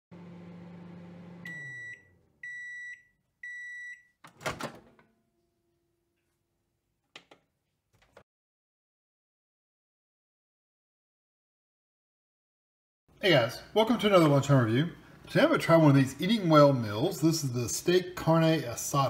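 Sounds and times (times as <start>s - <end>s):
microwave oven humming: 0.1s - 2.7s.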